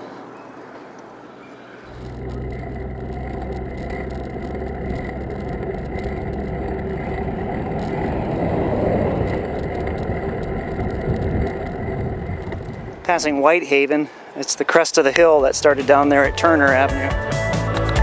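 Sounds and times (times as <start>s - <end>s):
road noise: 0.8s - 17.1s
traffic engine hum: 1.8s - 13.3s.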